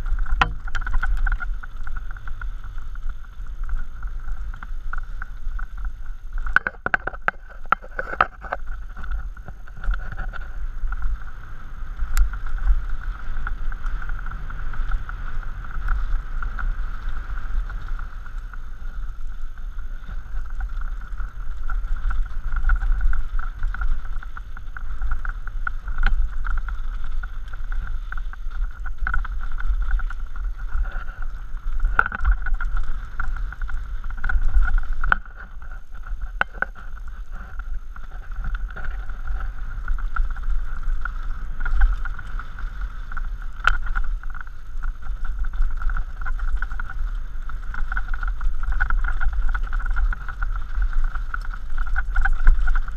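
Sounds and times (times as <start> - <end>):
bike knocking and rattling over rocks: 0.0 - 52.9
wind rumble on microphone: 0.0 - 52.9.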